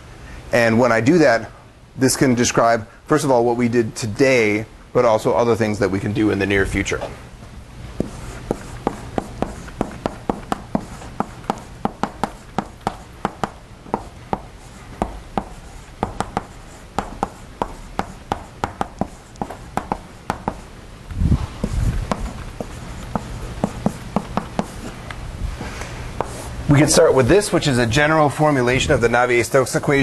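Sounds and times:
chalk tapping and scratching: 8.0s - 20.7s, 21.5s - 25.0s, 26.2s - 26.6s.

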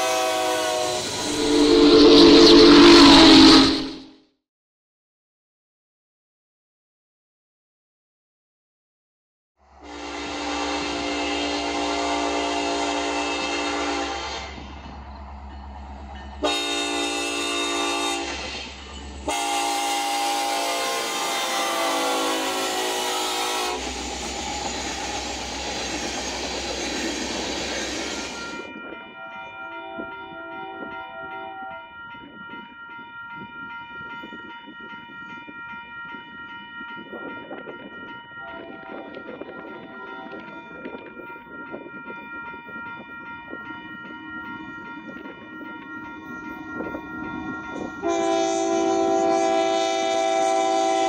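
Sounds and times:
locomotive air horn blasts: 0.0s - 4.1s, 9.8s - 14.7s, 16.4s - 18.6s, 19.3s - 23.9s, 48.0s - 51.0s.

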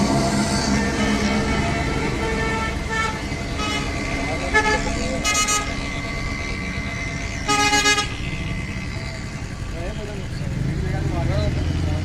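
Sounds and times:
vehicle horns tooting: 0.0s - 8.7s
road traffic rumble: 0.0s - 12.0s.

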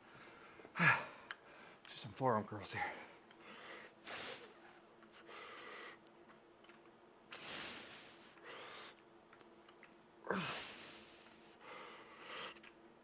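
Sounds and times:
man breathing hard: 0.0s - 1.9s, 3.0s - 4.6s, 5.2s - 6.0s, 7.3s - 9.0s, 10.3s - 12.7s
man grunting: 10.3s - 10.6s.

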